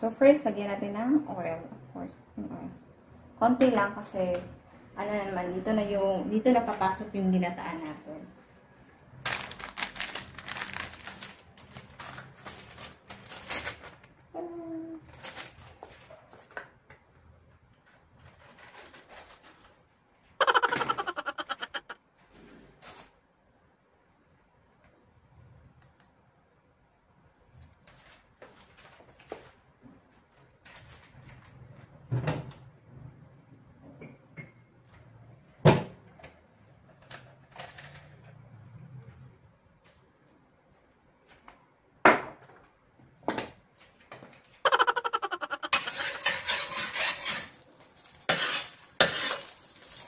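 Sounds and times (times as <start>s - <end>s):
rapid laughter: 20.4s - 22.0s, 44.7s - 46.0s.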